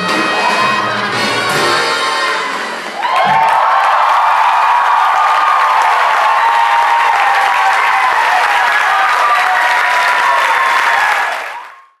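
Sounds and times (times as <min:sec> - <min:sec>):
audience applauding: 0:02.6 - 0:12.0.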